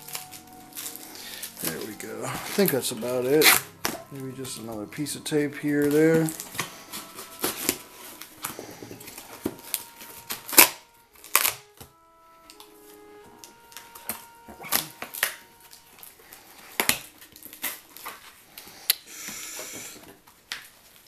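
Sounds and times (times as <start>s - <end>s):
packing tape peeling: 0.0s - 4.0s, 5.9s - 11.9s, 16.6s - 19.7s
rustling: 0.0s - 21.0s.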